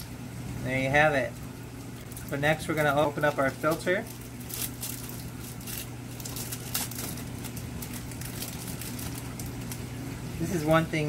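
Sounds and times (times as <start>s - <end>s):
steady low hum: 0.0s - 11.0s
plastic bag crinkling: 1.4s - 9.9s.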